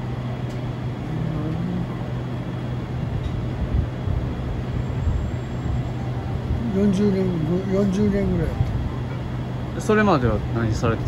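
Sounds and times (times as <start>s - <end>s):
compressor units humming: 0.0s - 11.0s.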